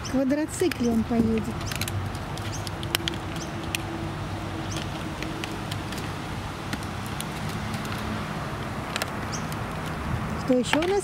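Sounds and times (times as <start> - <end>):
small sharp clicks: 0.5 - 3.9.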